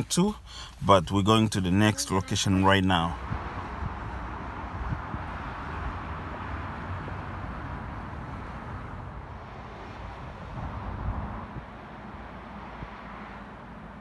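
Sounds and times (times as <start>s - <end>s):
road traffic hum: 0.0s - 14.0s
wind buffeting the microphone: 3.1s - 13.0s.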